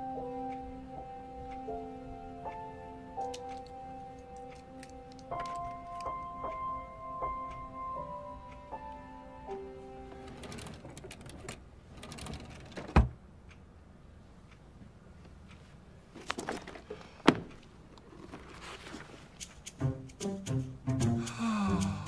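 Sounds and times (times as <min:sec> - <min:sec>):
book rustling: 0:18.0 - 0:19.6.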